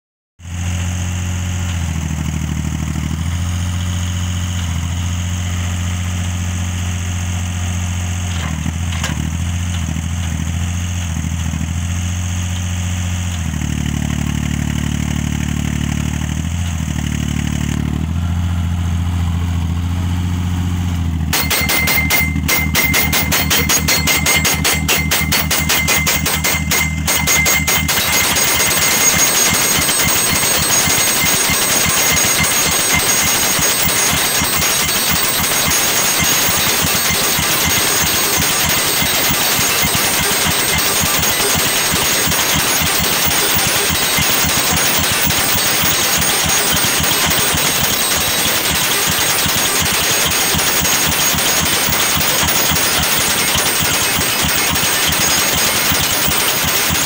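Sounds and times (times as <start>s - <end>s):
post driver engine running: 0.4s - 57.0s
hammer pounding steel post: 21.3s - 57.0s.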